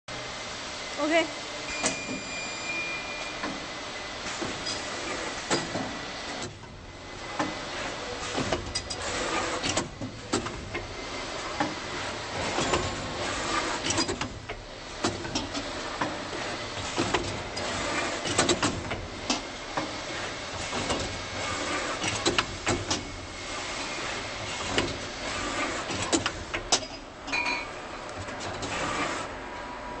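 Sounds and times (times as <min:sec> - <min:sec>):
faint high tone: 0:01.7 - 0:03.4.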